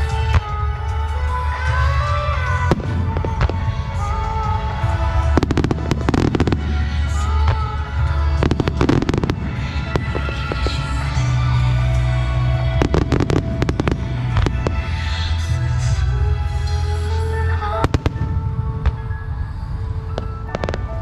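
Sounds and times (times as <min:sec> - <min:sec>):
low rumble: 0:00.0 - 0:21.0
sustained melodic music: 0:00.0 - 0:21.0
fireworks cracks and bangs: 0:01.7 - 0:15.4.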